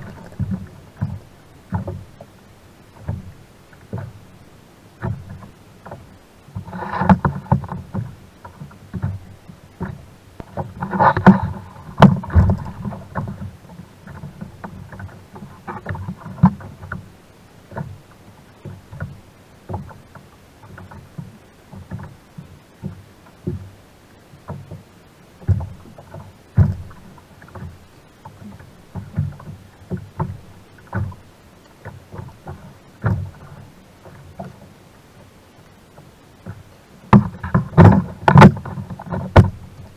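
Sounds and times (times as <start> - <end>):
water lapping against kayak hull: 0.0 - 39.9
knocks and taps of gear: 36.4 - 39.6.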